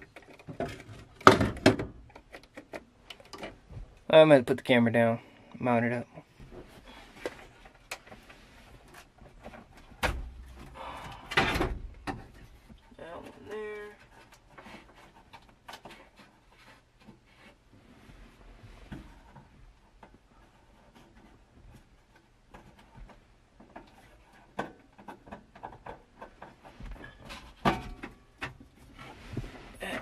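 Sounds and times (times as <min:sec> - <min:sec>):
hands tapping and rubbing plastic: 0:00.0 - 0:04.1, 0:18.8 - 0:29.5.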